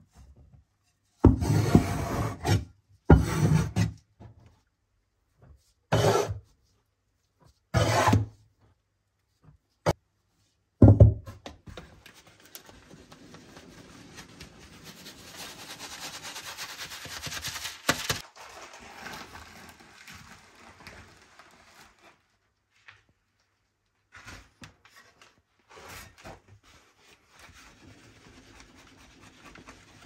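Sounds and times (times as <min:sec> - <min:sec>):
flour rattling through sieve: 0:12.4 - 0:22.3.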